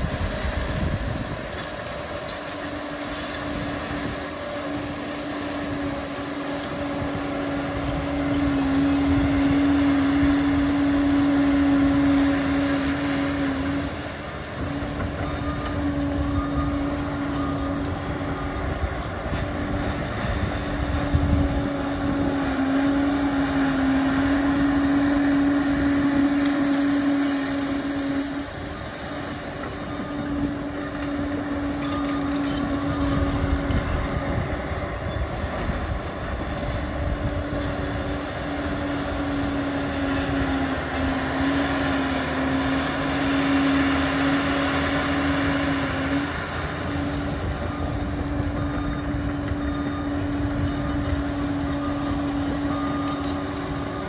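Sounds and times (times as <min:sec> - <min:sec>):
bulldozer diesel engine: 0:00.0 - 0:54.0
steady whine: 0:00.0 - 0:54.0.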